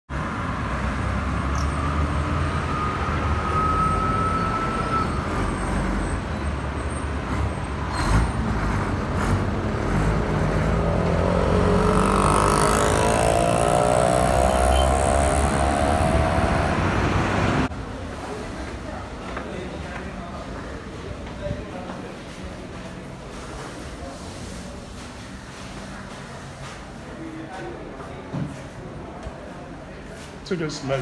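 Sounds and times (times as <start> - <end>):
road traffic rumble: 0.1 - 27.3
small engine accelerating past: 10.0 - 17.6.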